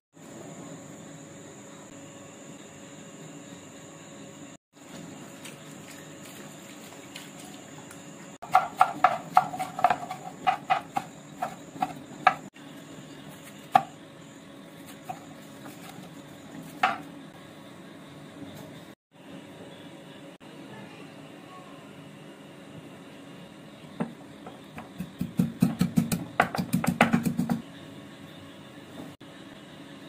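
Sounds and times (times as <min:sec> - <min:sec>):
cleaver chopping on wooden board: 0:08.4 - 0:12.5.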